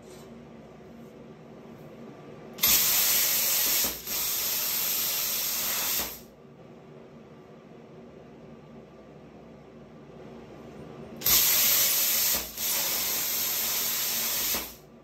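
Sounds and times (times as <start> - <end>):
plasma cutter hissing: 2.6 - 6.3, 11.2 - 14.8.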